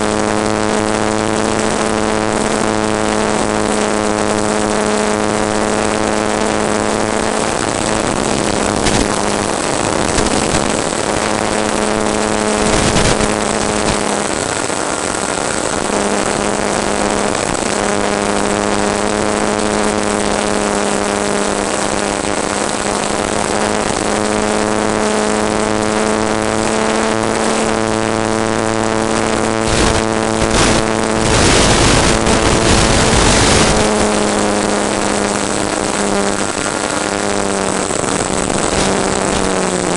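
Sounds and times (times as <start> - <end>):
model airplane motor and propeller: 0.0 - 39.9
wind rushing over microphone: 0.0 - 39.9.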